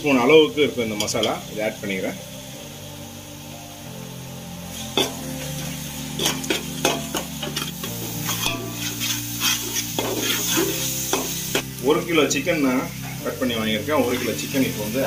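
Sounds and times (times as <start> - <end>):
paste sizzling in oil: 0.0 - 15.0
metal spoon scraping pot: 6.2 - 11.3.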